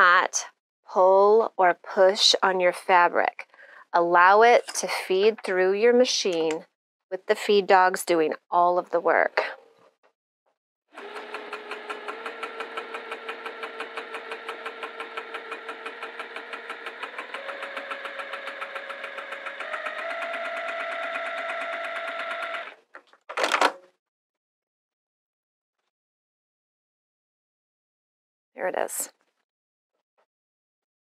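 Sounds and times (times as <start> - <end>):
sewing machine stitching: 11.0 - 23.7.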